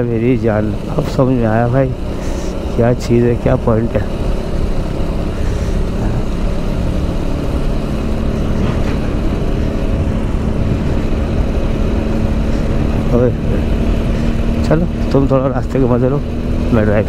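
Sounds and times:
steady hum: 0:00.0 - 0:16.7
motorcycle engine drone: 0:00.0 - 0:17.0
wind rumble on microphone: 0:08.1 - 0:14.5.

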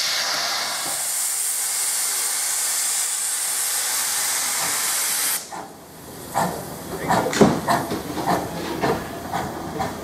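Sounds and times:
steam locomotive hissing: 0:00.0 - 0:10.0.

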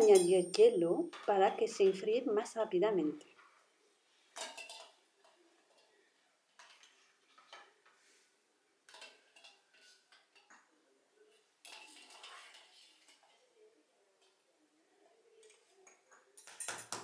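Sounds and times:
spoon and eggs clinking on metal bowl: 0:00.0 - 0:01.4, 0:04.4 - 0:06.0, 0:08.9 - 0:10.7.

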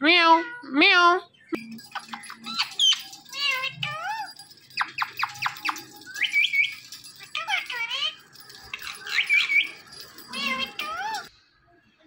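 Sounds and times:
parrot speech-like chatter: 0:01.9 - 0:11.3
parrot whistled calls: 0:04.8 - 0:07.3, 0:09.1 - 0:09.8.

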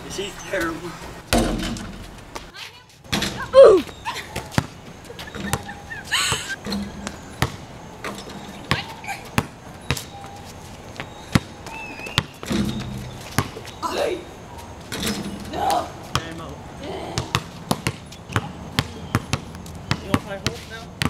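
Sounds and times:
basketballs bouncing on concrete: 0:01.3 - 0:13.8, 0:14.6 - 0:21.0
person shouting: 0:03.5 - 0:03.8.

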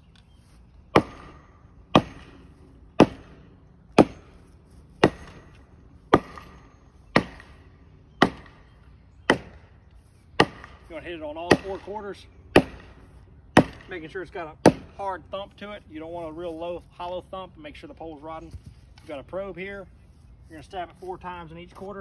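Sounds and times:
hammer striking wooden pole: 0:00.9 - 0:09.7, 0:10.4 - 0:14.0, 0:14.6 - 0:15.0.

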